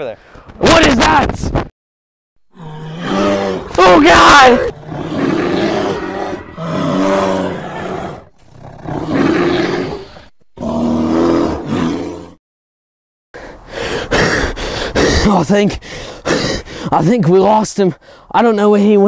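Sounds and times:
monster roaring: 0:02.5 - 0:12.4.

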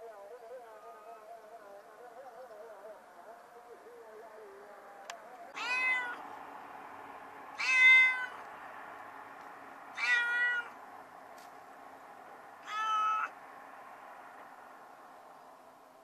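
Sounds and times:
kitten meowing in a well: 0:05.6 - 0:06.2, 0:07.6 - 0:08.4, 0:10.0 - 0:10.7, 0:12.6 - 0:13.3.

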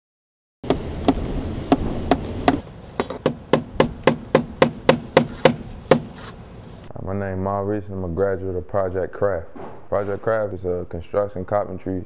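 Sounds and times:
hammer blows: 0:00.6 - 0:06.3.

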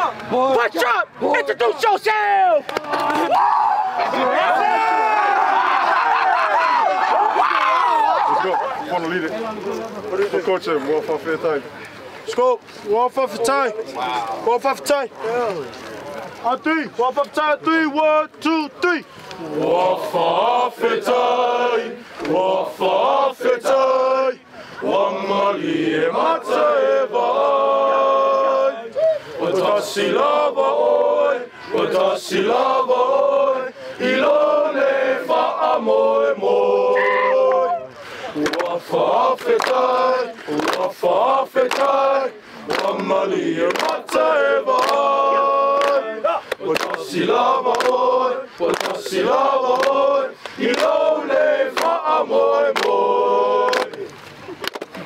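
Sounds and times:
group of men chanting: 0:19.4 - 0:54.1
men singing in chorus: 0:19.5 - 0:37.8, 0:38.4 - 0:54.1
hand claps: 0:38.4 - 0:38.8, 0:39.4 - 0:39.8, 0:40.5 - 0:40.9, 0:41.6 - 0:42.0, 0:42.7 - 0:45.0, 0:45.8 - 0:47.1, 0:47.7 - 0:48.0, 0:48.7 - 0:49.1, 0:49.7 - 0:51.0, 0:51.7 - 0:52.0, 0:52.7 - 0:53.0, 0:53.7 - 0:55.0.

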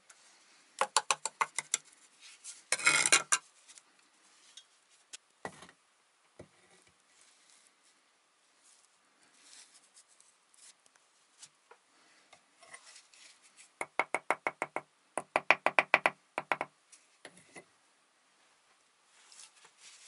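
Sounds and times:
faint scraping and handling: 0:01.6 - 0:05.7, 0:06.4 - 0:13.8, 0:18.4 - 0:20.0
hammer tapping brick: 0:13.8 - 0:16.7.

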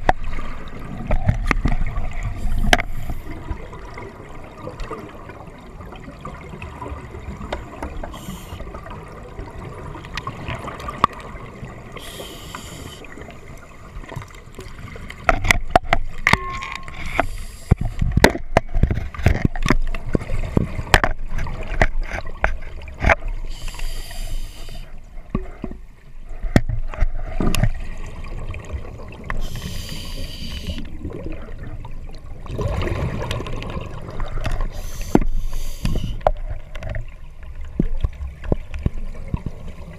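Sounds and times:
exhaled bubbles gurgling: 0:00.0 - 0:18.3, 0:27.2 - 0:39.9
regulator inhalation hiss: 0:08.1 - 0:08.6, 0:12.0 - 0:13.1, 0:17.2 - 0:17.8, 0:23.5 - 0:24.9, 0:29.4 - 0:30.8, 0:34.7 - 0:36.2
sharp clicks and knocks: 0:15.3 - 0:23.2.

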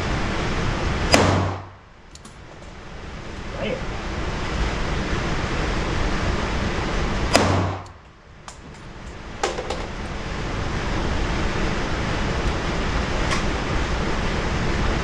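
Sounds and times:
steady rushing background: 0:00.0 - 0:15.0
gunshot: 0:01.1 - 0:01.7, 0:07.3 - 0:07.8.

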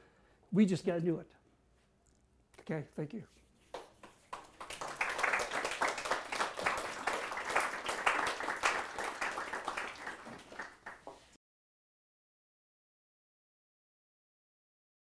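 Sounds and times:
audience applauding: 0:04.3 - 0:11.3.

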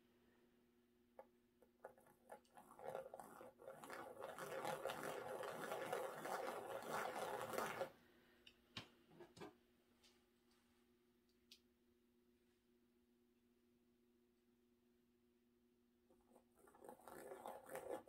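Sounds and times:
skewer scratching through wet paint: 0:02.0 - 0:07.9, 0:16.1 - 0:18.0.

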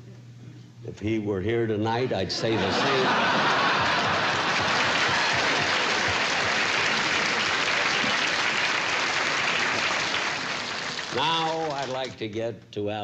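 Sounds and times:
audience applauding: 0:02.5 - 0:12.2.

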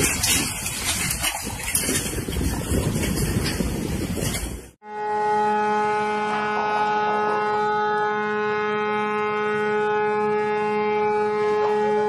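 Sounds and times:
ship's horn blast: 0:04.8 - 0:12.0.

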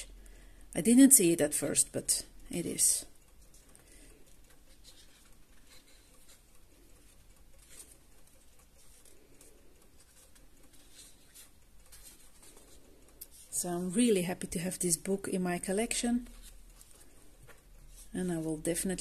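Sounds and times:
paper pages rustling: 0:04.3 - 0:13.6.

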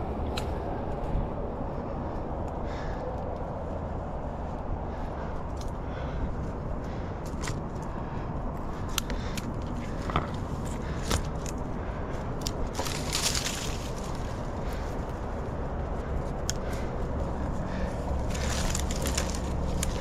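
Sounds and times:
twigs clicking and cracking: 0:01.8 - 0:20.0
leaves rustling: 0:05.9 - 0:20.0.

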